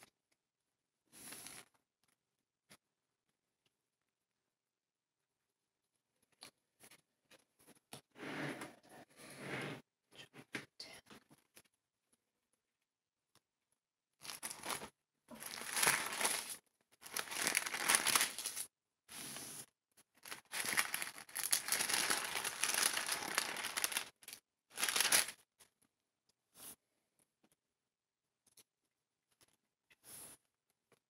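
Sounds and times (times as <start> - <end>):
thin pages rustling: 14.2 - 18.7, 20.2 - 25.4.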